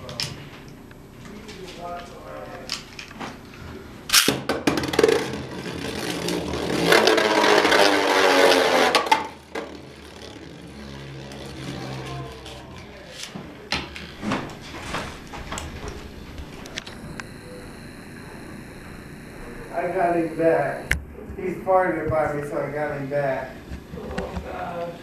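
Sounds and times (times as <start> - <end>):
launcher whirring: 4.1 - 13.0
spinning top scraping hum: 4.8 - 25.0.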